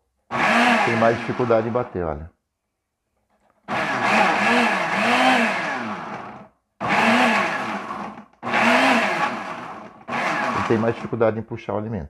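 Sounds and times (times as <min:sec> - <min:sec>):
blender motor pulsing: 0:00.3 - 0:01.8, 0:03.7 - 0:11.2.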